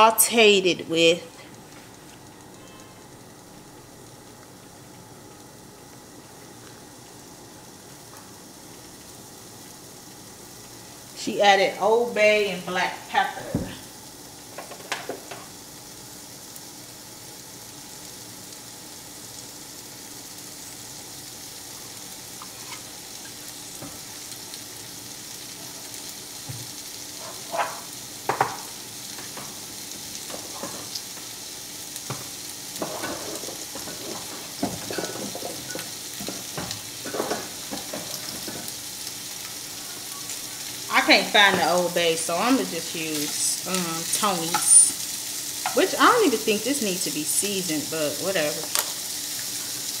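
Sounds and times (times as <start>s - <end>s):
food sizzling in a pan: 0.0s - 50.0s
spoon scraping a pan: 22.4s - 22.9s, 27.2s - 27.9s, 32.8s - 38.7s.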